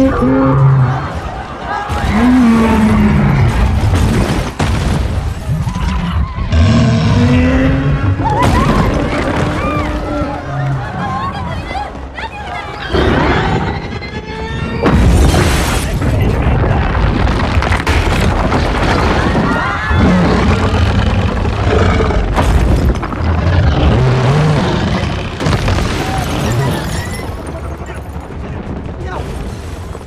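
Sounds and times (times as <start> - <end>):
crowd shouting and screaming: 0.0 - 3.9, 7.6 - 14.9
heavy booms and crashing rubble: 0.0 - 30.0.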